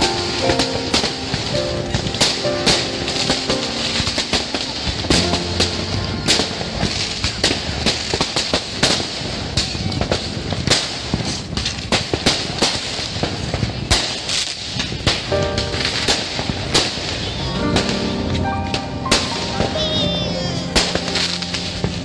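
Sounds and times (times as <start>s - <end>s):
music playing: 0.0s - 8.2s, 15.3s - 22.0s
fireworks and firecrackers banging: 0.0s - 22.0s.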